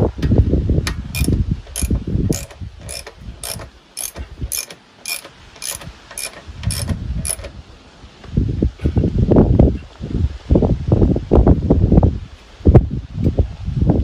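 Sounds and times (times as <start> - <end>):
low rumbling handling noise: 0.0 - 10.0
sharp mechanical clicking: 0.9 - 7.6.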